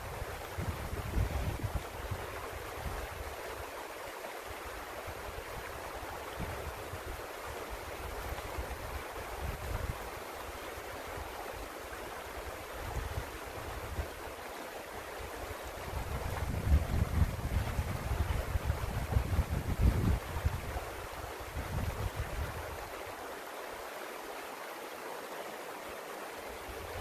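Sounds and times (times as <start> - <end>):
wind buffeting microphone: 0.0 - 3.2, 15.7 - 22.9
creek running over rocks: 0.0 - 27.0.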